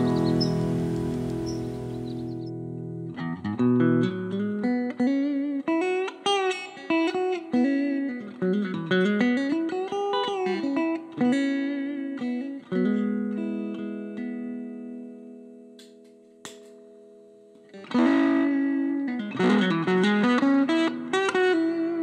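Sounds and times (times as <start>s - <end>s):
electric guitar chord ringing: 0.0s - 5.8s
electric guitar lead line: 0.0s - 15.8s, 16.8s - 22.0s.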